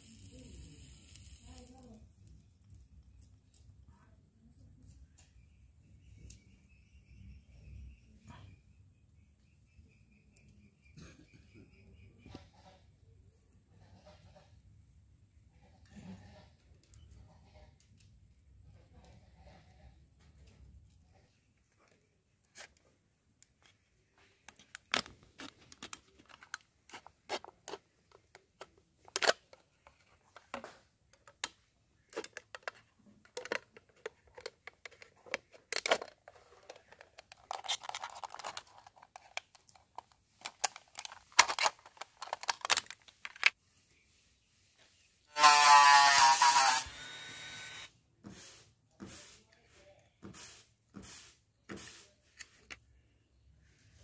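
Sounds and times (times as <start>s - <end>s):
loud buzzing: 45.4s - 47.9s.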